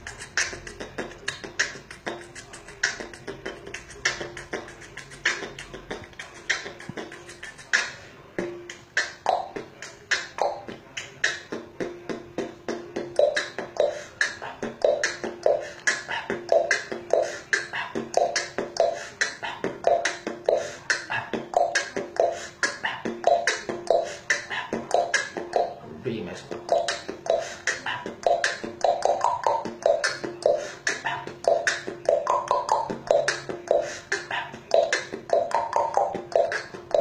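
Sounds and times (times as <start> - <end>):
human beatboxing: 0.0 - 37.0.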